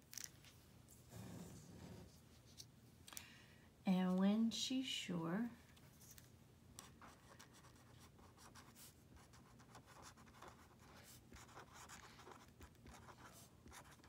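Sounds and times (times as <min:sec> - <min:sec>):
pen scratching on paper: 0:07.0 - 0:14.0.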